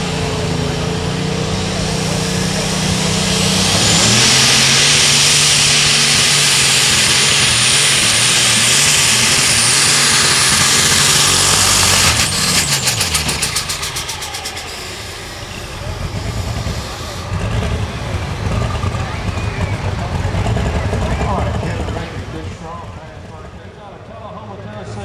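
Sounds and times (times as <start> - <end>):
tractor engine revving: 0.0 - 25.0
high turbo whistle: 3.2 - 19.9.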